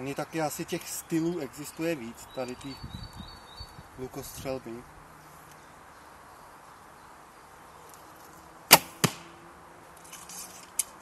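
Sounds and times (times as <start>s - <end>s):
arrow striking target: 8.7s - 9.4s.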